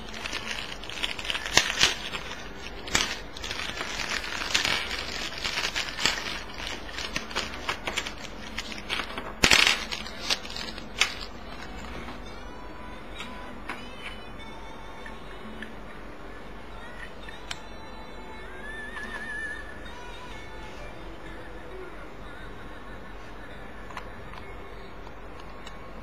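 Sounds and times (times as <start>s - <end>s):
plastic bag crinkling: 0.0s - 12.1s.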